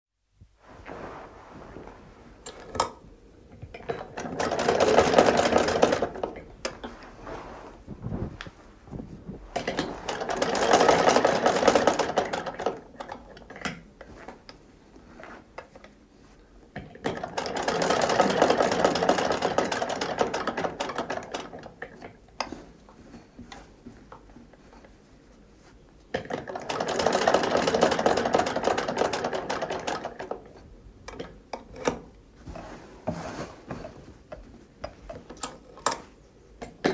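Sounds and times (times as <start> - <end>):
sewing machine stitching rattle: 3.8 - 6.9, 9.6 - 13.7, 17.0 - 21.7, 26.2 - 30.5.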